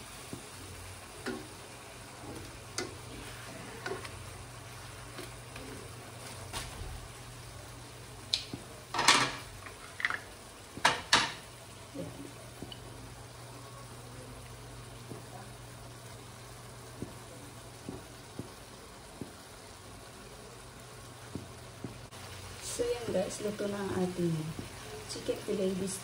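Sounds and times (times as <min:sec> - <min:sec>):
food simmering in a wok: 0:00.0 - 0:26.0
metal tongs knocking on pan: 0:01.2 - 0:01.6.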